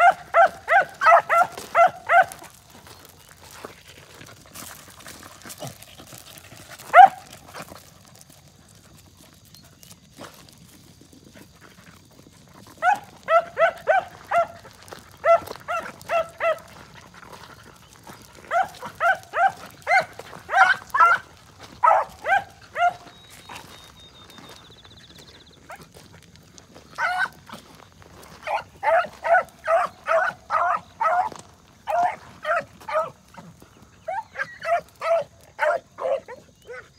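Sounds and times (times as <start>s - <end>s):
dog barking: 0.0s - 2.4s, 6.9s - 7.3s, 12.8s - 14.6s, 15.2s - 16.7s, 18.5s - 23.1s, 27.0s - 27.4s, 28.4s - 33.2s, 34.1s - 36.9s.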